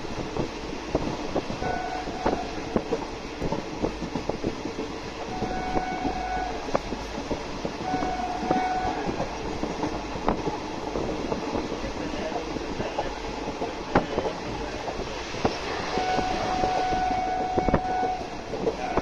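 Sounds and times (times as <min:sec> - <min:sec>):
train rumble: 0:00.0 - 0:19.0
wheels clicking over rail joints: 0:00.0 - 0:19.0
train horn: 0:01.6 - 0:02.6, 0:05.3 - 0:06.8, 0:07.8 - 0:09.3, 0:15.9 - 0:19.0.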